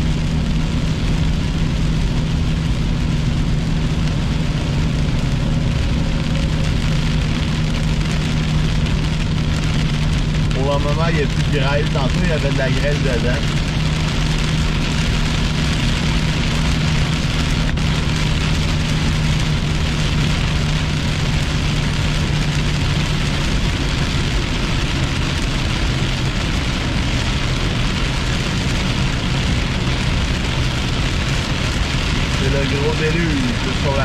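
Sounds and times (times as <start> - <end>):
car engine humming: 0.0 - 34.0
heavy rain on car: 0.0 - 34.0.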